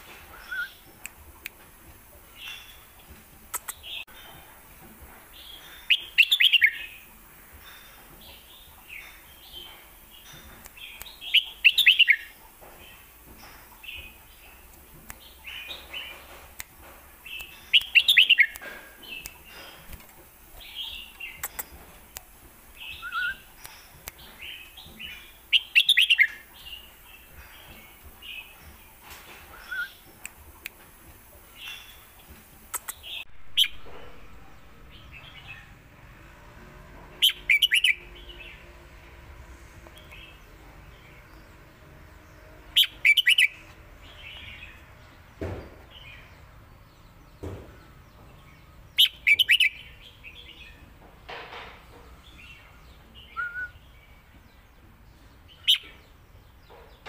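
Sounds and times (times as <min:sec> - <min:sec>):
soft short bird chirps: 0:21.0 - 0:21.8
bird singing bubbling whistles: 0:53.3 - 0:53.8.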